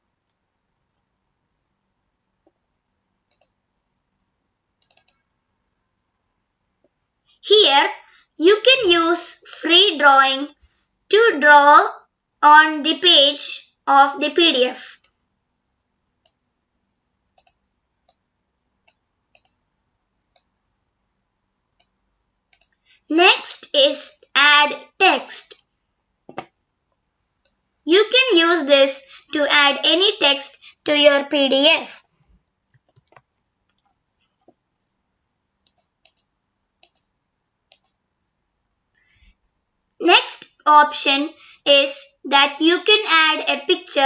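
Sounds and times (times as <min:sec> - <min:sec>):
computer mouse clicks: 0:00.2 - 0:01.1, 0:02.4 - 0:03.6, 0:04.2 - 0:05.3, 0:14.9 - 0:15.2, 0:16.2 - 0:16.4, 0:17.3 - 0:19.7, 0:20.3 - 0:20.6, 0:21.7 - 0:22.9, 0:25.6 - 0:27.6, 0:32.3 - 0:35.0, 0:35.6 - 0:38.1.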